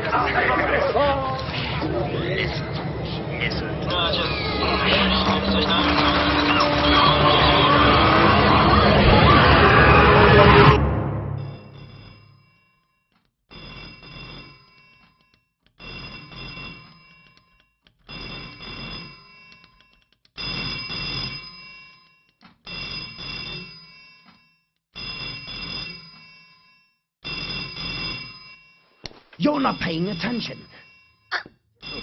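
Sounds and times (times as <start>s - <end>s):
telephone bell ringing: 2.6s - 10.8s, 11.4s - 32.0s.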